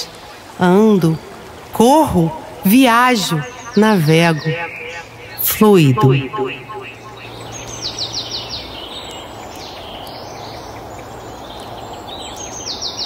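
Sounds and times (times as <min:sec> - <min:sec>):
outdoor background noise: 0:00.0 - 0:13.0
bird calling high notes: 0:02.0 - 0:08.0.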